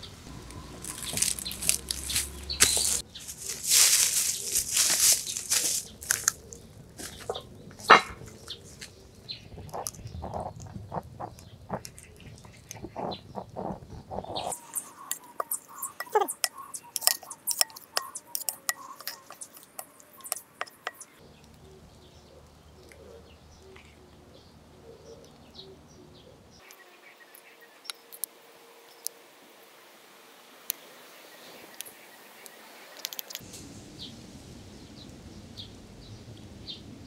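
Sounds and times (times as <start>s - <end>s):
faint bird chirps: 0.0s - 29.2s
utensils tapping on ceramic plate: 14.4s - 21.2s.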